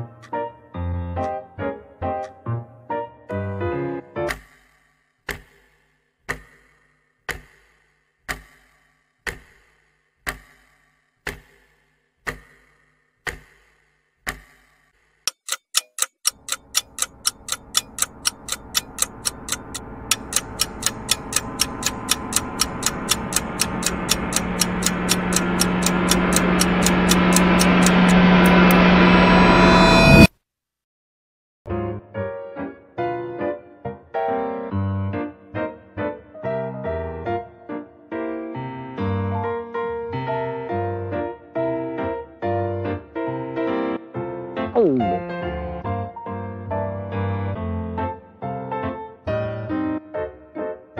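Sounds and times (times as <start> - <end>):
clock ticking: 6.3 - 7.7, 8.3 - 10.7, 11.3 - 12.7, 13.3 - 13.7, 14.3 - 14.7, 15.3 - 28.9
swelling noise: 16.8 - 30.3.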